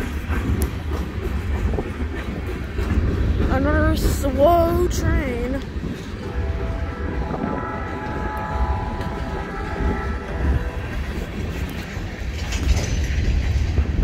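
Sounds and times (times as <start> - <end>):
freight train rumbling past: 0.0 - 14.0
train wheel clacks: 0.0 - 14.0
train horn chord: 6.2 - 11.2.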